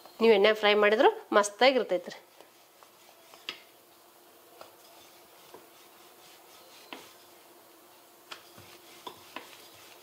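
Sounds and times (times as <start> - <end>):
rolling pin rubbing dough: 2.1 - 3.7, 4.8 - 7.5, 8.3 - 10.0.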